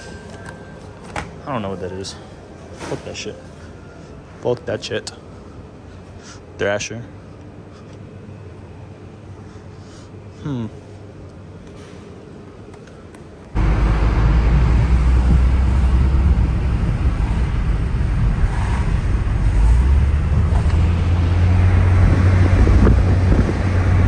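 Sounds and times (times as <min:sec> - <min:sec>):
road and wind noise: 0:13.5 - 0:24.0
car engine drone: 0:13.6 - 0:24.0.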